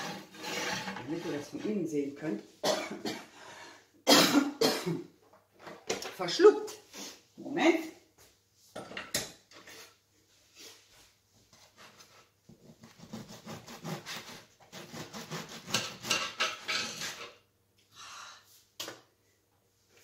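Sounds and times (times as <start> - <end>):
bread knife sawing crusty bread: 0.0 - 1.4, 12.8 - 17.2.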